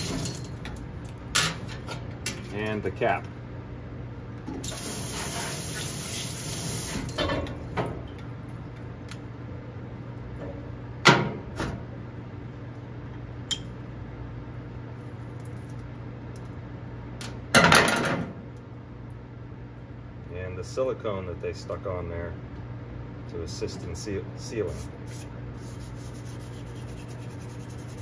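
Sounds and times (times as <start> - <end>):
faucet spray hissing: 4.7 - 7.0.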